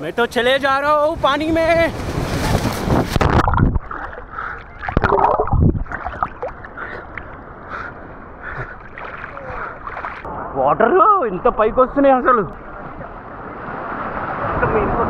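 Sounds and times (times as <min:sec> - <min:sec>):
water splashing and sloshing: 0:01.9 - 0:10.4.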